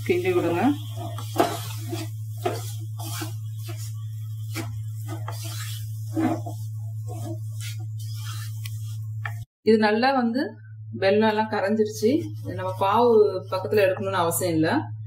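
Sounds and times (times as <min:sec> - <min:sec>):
spatula scraping pan: 0:00.0 - 0:09.0
steady low hum: 0:00.0 - 0:15.0.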